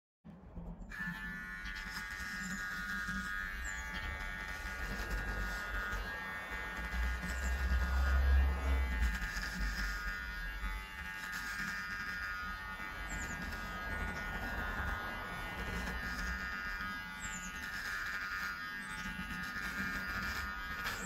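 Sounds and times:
electric beard trimmer buzzing: 0.9s - 21.0s
low rumble: 3.4s - 10.8s.

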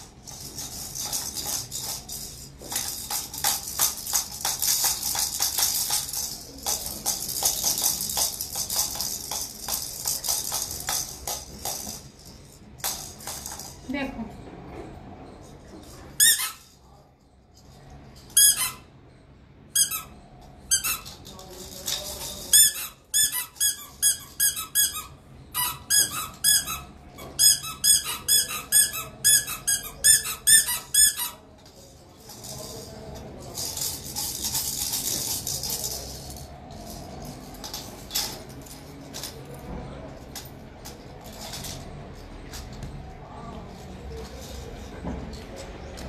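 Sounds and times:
shaking rattling hiss: 0.0s - 13.9s
rubber squeeze toy squeaking: 16.2s - 16.7s, 18.3s - 18.9s, 19.7s - 21.2s, 22.2s - 31.4s.

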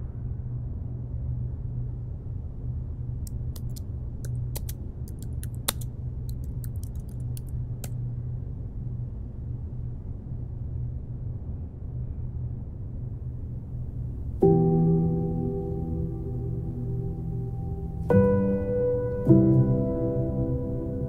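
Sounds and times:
low steady rumble: 0.0s - 21.0s
computer keyboard typing: 3.3s - 8.0s.

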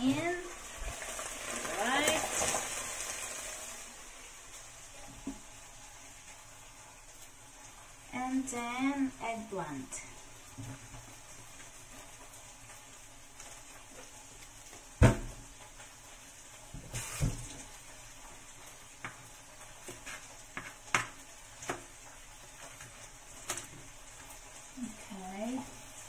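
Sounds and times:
vegetables sizzling in a pan: 0.0s - 26.0s.

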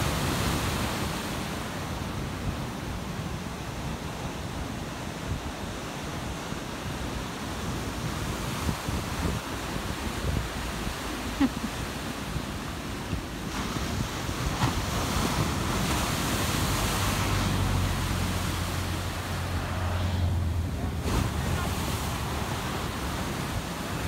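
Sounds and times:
ocean surf breaking: 0.0s - 24.0s
wind buffeting microphone: 6.3s - 11.2s.

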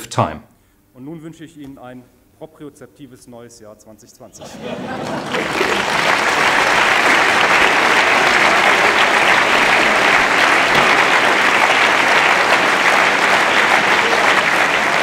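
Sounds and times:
audience applauding: 4.4s - 15.0s.

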